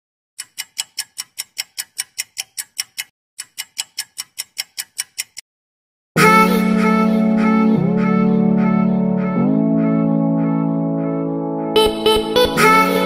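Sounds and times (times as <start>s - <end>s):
rapid ticking: 0.4s - 5.4s.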